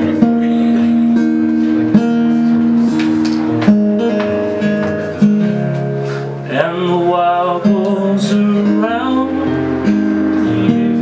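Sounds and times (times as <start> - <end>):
man singing: 0.0 - 1.5, 6.4 - 11.0
acoustic guitar strumming: 0.0 - 11.0.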